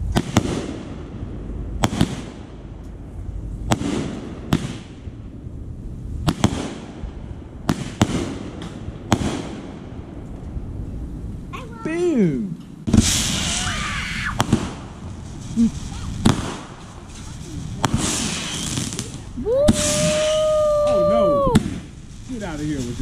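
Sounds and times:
firework shells bursting: 12.6s - 23.0s.

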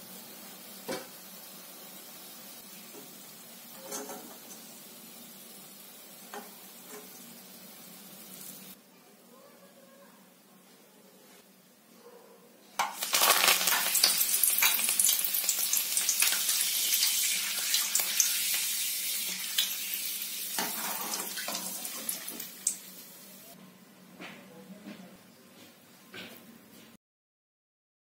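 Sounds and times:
leaves sizzling in hot oil: 0.0s - 8.8s, 12.8s - 23.6s.

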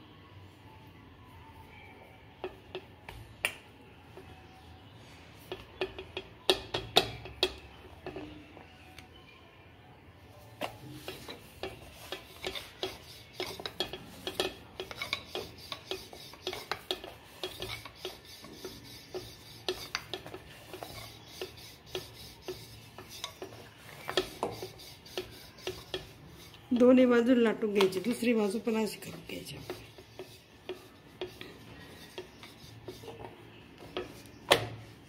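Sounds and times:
rolling pin rubbing on glass: 10.7s - 27.2s, 27.8s - 35.0s.

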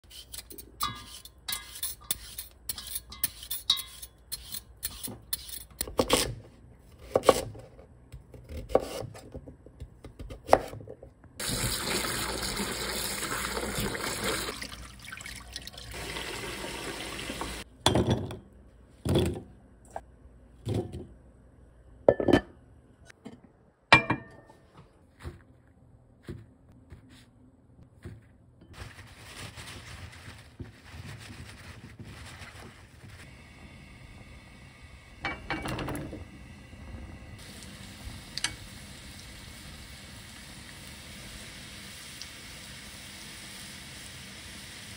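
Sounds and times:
peeler scraping potato skin: 0.0s - 6.4s
paper towels rustling: 27.9s - 33.4s.

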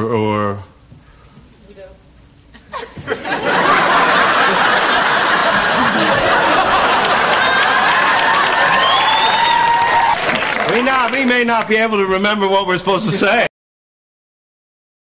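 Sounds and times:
audience laughing loudly: 2.6s - 9.0s
clapping: 6.8s - 11.2s.

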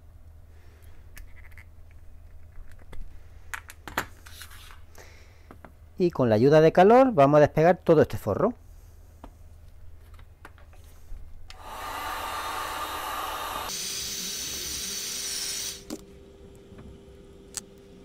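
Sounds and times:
heat gun blowing: 11.5s - 16.0s.

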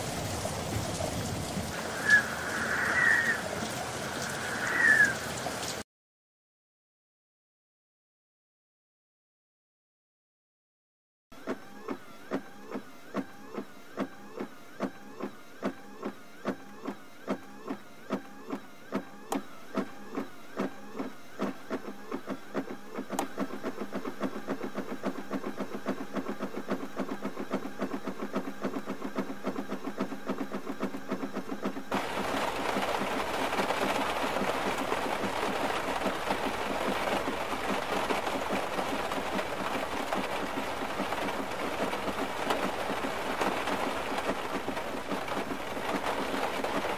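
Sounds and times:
heavy rain on car roof: 0.0s - 5.8s, 15.5s - 46.9s.

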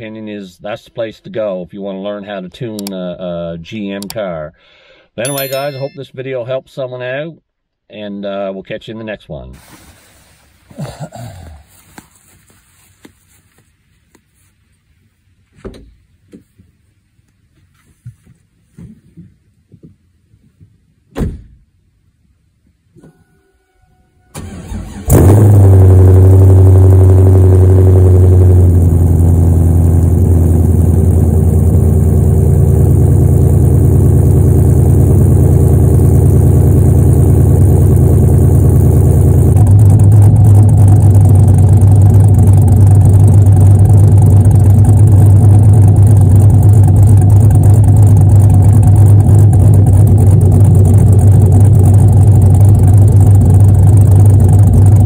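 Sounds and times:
car engine idling: 24.4s - 55.0s.

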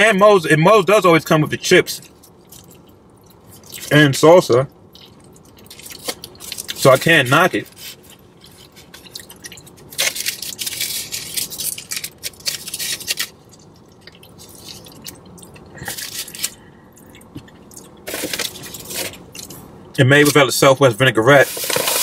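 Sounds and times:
chewing: 2.0s - 3.9s, 4.7s - 6.8s, 7.8s - 19.5s
aluminium foil crinkling: 5.0s - 16.6s, 17.7s - 19.6s, 21.4s - 22.0s.

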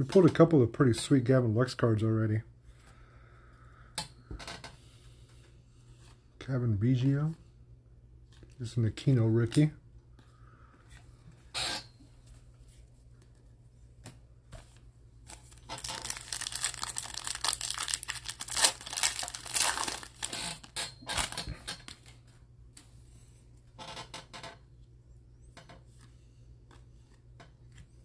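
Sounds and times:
cards being handled: 12.3s - 20.4s
foil card pack tearing: 15.3s - 22.1s.

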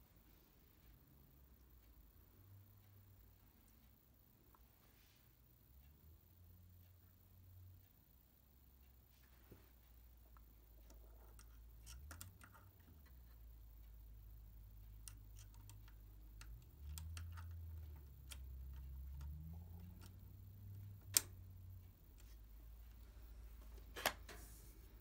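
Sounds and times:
small metal clicks and taps: 10.3s - 13.4s, 14.8s - 21.4s.

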